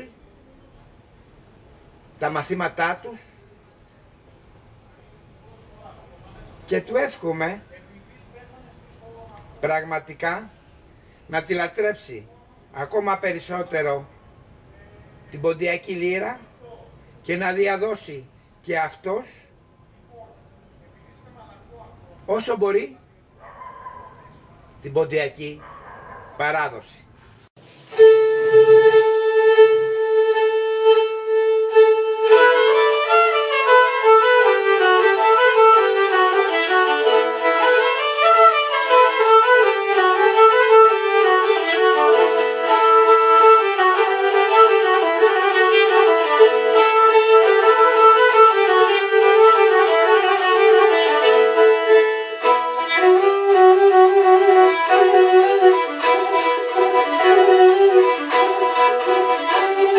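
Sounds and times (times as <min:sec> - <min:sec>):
bowed lyras playing folk melody: 0:27.7 - 0:59.9.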